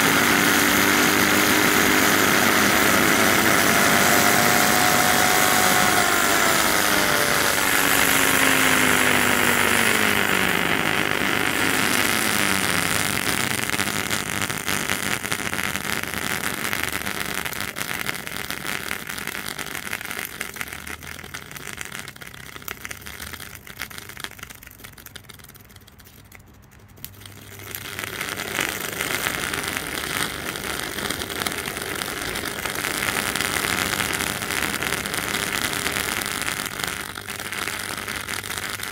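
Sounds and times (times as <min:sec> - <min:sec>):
electric motor whine: 0:00.0 - 0:14.9
hiss of sparking: 0:00.0 - 0:24.6, 0:27.0 - 0:38.9.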